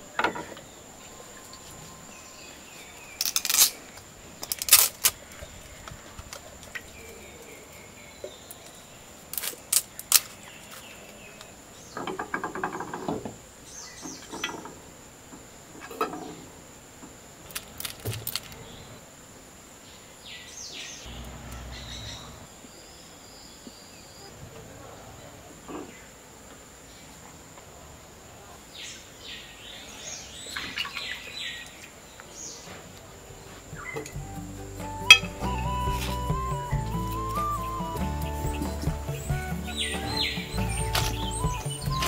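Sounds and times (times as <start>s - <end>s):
faint birds chirping: 0.0s - 42.0s
steady high-pitched tone: 34.2s - 42.0s.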